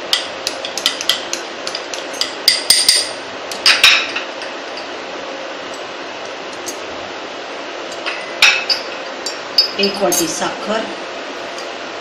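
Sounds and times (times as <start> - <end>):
glass bowl clinking: 2.0 - 4.9, 8.1 - 10.4.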